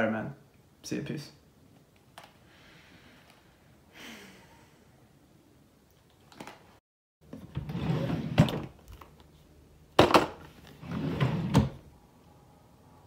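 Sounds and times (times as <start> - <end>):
wooden drawer sliding: 7.3 - 8.7, 10.7 - 11.8.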